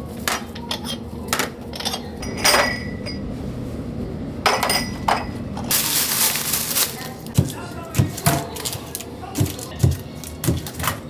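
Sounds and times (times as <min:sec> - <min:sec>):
ceramic bowls clinking: 0:00.2 - 0:03.3, 0:04.4 - 0:05.8.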